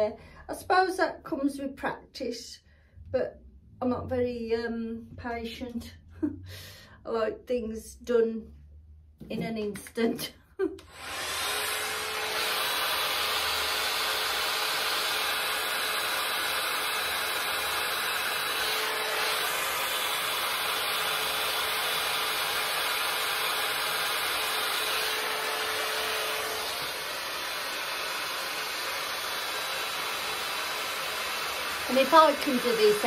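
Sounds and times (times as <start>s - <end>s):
hot air brush blowing: 10.8s - 33.0s.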